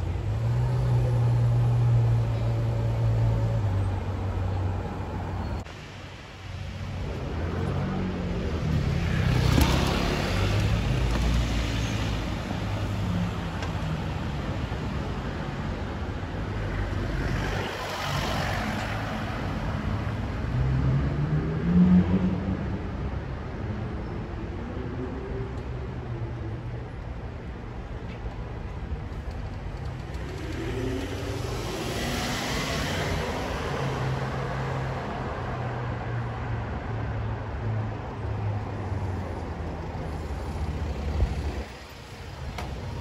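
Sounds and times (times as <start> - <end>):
vehicles driving past: 0.0 - 43.0.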